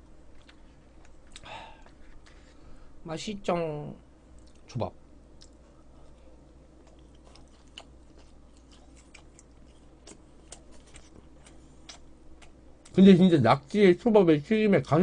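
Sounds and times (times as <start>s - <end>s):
faint chewing: 0.3s - 2.6s, 4.3s - 4.7s, 5.4s - 13.0s.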